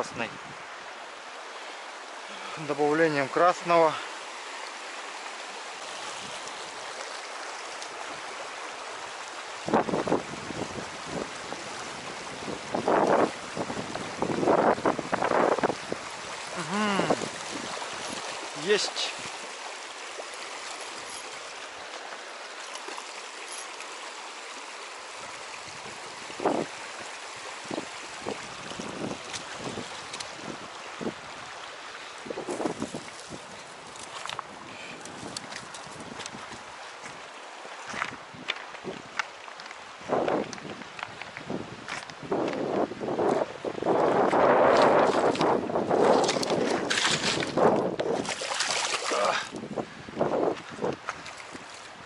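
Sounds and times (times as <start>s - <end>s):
river rushing over stones: 0.0s - 52.0s
wind buffeting microphone: 9.6s - 18.4s, 25.6s - 31.6s, 32.2s - 37.2s, 40.0s - 52.0s.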